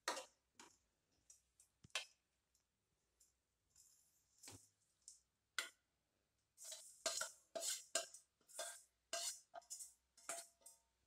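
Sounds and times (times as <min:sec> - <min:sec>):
steel bowl scraping metal pan: 0:06.6 - 0:10.8.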